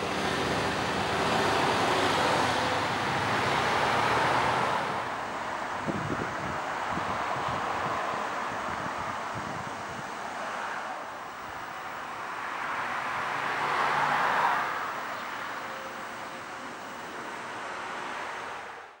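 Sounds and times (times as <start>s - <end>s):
road traffic rushing: 0.0s - 19.0s
vehicle passing: 0.0s - 19.0s.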